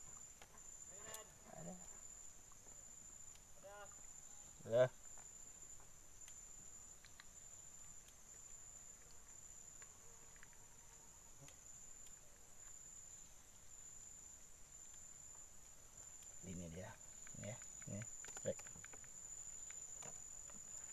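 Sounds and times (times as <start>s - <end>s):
soft ticks: 3.2s - 4.1s, 5.1s - 12.2s, 14.7s - 20.9s.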